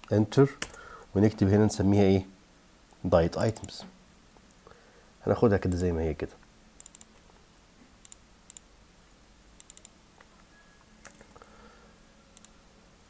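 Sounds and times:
keyboard and mouse clicks: 0.0s - 0.8s, 6.8s - 7.3s, 8.0s - 8.7s, 9.6s - 11.5s, 12.4s - 12.6s.

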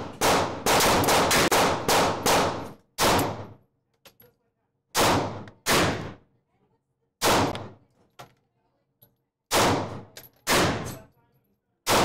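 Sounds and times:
gunshots echoing indoors: 0.0s - 3.6s, 5.0s - 6.2s, 7.2s - 7.8s, 9.5s - 11.1s.

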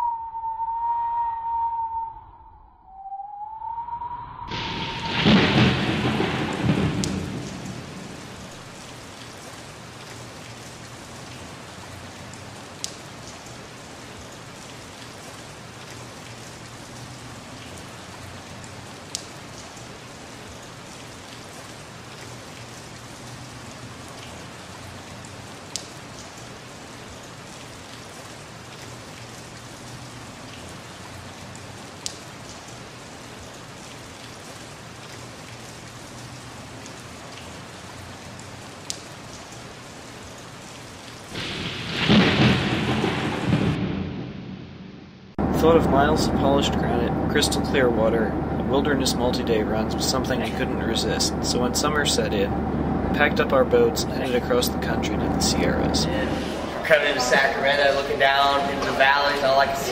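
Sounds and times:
thunder clap rumbling: 4.3s - 9.2s, 41.3s - 59.9s
steady rain: 4.5s - 59.9s.

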